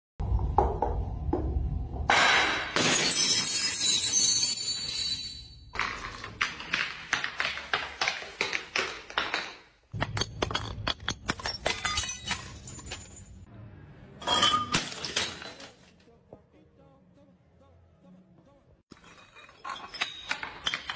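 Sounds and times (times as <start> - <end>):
glass bottles knocking on stone stairs: 0.4 - 13.5, 14.2 - 15.7, 18.9 - 20.9
glass shattering: 2.1 - 6.3, 9.4 - 13.5, 14.2 - 15.9, 18.9 - 20.9.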